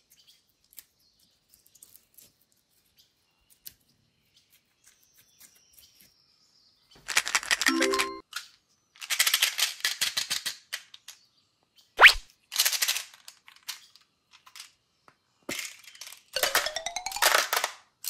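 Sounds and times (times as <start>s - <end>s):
candies rattling in plastic tube: 7.0s - 8.2s, 9.0s - 10.9s, 12.5s - 13.8s, 15.5s - 17.8s
short upward-sweeping sound: 12.0s - 12.2s.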